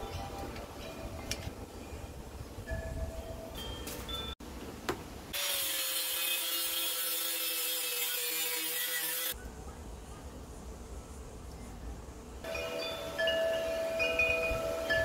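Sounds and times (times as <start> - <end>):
angle grinder cutting steel: 5.3 - 9.4.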